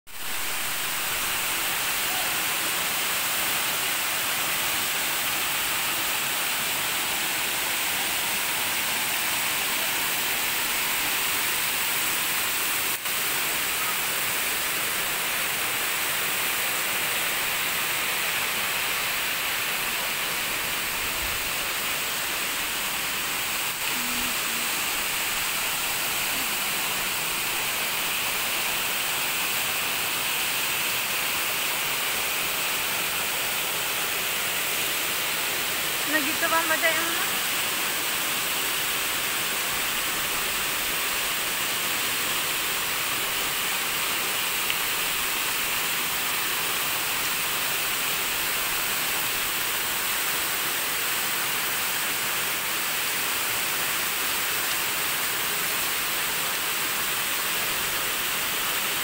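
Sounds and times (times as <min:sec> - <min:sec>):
waterfall rushing: 0:00.2 - 0:59.0.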